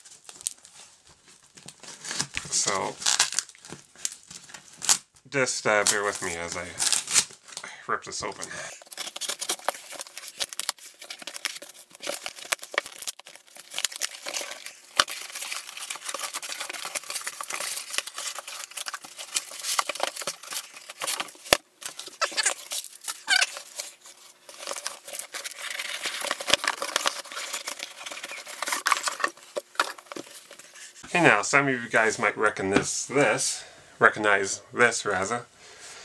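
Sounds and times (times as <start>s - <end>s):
tape and cardboard tearing: 1.6s - 5.1s, 5.8s - 7.4s, 8.8s - 30.8s.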